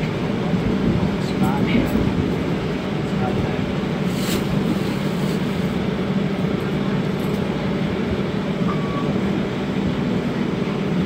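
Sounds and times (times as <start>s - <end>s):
streetcar hum and rumble: 0.0s - 11.0s.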